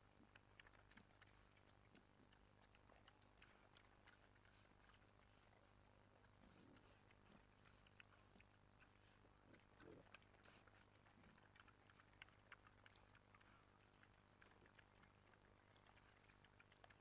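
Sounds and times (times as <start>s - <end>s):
chewing clicks: 0.0s - 17.0s
steady low hum: 0.0s - 17.0s
pig grunts: 9.6s - 11.7s.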